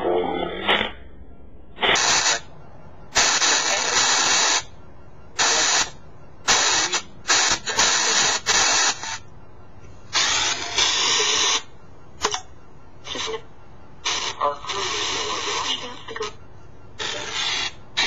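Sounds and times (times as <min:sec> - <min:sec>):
static bursts from phone speaker: 0:01.8 - 0:09.3, 0:10.0 - 0:12.4, 0:13.0 - 0:18.0.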